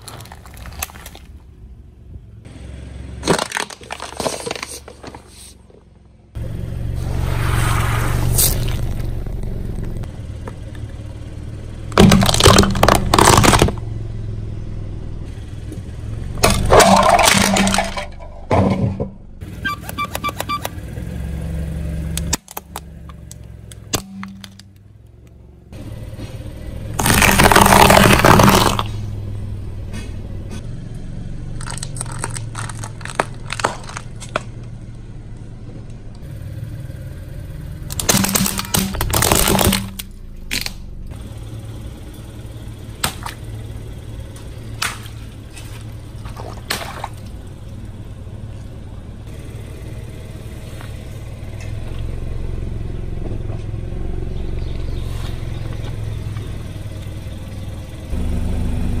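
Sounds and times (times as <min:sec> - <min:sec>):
tire crushing plastic toys: 0:00.0 - 0:01.6, 0:03.1 - 0:06.0, 0:11.9 - 0:14.0, 0:16.4 - 0:20.9, 0:22.1 - 0:25.4, 0:26.9 - 0:29.1, 0:31.5 - 0:35.4, 0:37.7 - 0:41.2, 0:42.8 - 0:47.9
car engine hum: 0:00.0 - 0:59.0.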